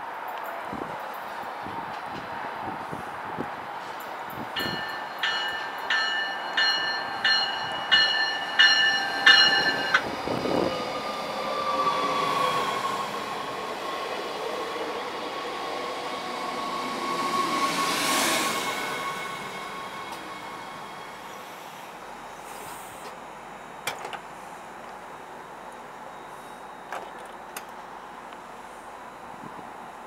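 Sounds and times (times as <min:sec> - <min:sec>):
train rolling past with high whine: 0:00.0 - 0:30.0
train bell striking: 0:04.5 - 0:10.1.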